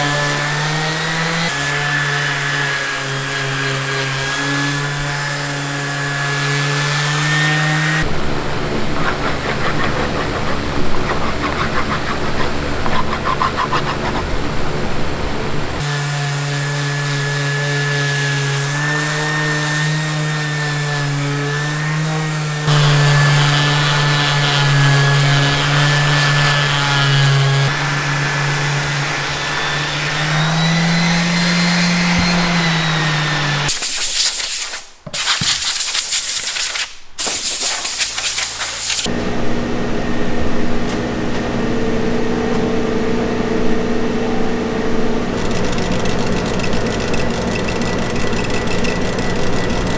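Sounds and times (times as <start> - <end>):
electric sander motor hum: 21.1 - 33.7, 45.3 - 49.9
sander pad rubbing on wood: 22.6 - 36.6, 45.4 - 49.9
laser engraver machine hum: 45.4 - 49.9.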